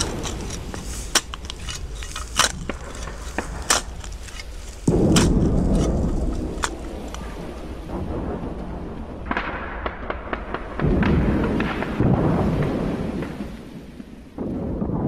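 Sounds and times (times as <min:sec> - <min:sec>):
sharp cracks and pops: 0:00.0 - 0:07.4
deep rumble: 0:00.0 - 0:10.0
low rumble: 0:00.0 - 0:11.3.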